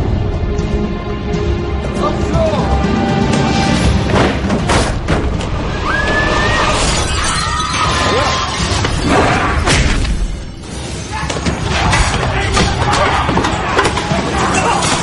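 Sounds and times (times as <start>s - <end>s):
glass shattering: 6.6s - 9.2s.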